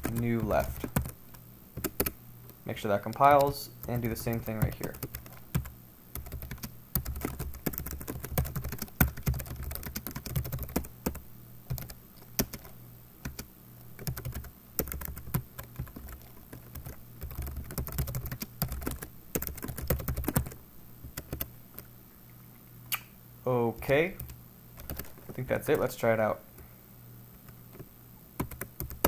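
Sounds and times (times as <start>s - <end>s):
typing on a computer keyboard: 0.0s - 1.2s, 1.8s - 2.2s, 3.1s - 12.7s, 13.3s - 21.5s, 24.2s - 25.2s, 27.8s - 29.0s.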